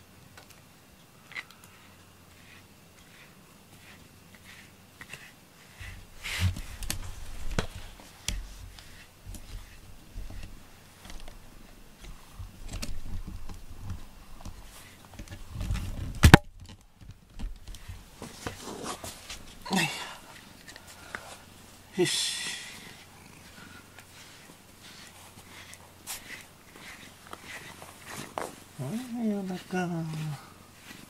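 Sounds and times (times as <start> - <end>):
brush rubbing through cat fur: 1.3 - 15.9, 17.7 - 31.0
handling bumps: 5.8 - 21.5.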